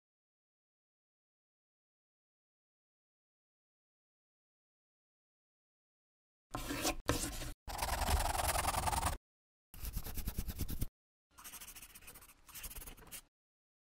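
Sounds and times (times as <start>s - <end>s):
pen scratching across a surface: 6.6s - 9.2s, 9.8s - 13.3s.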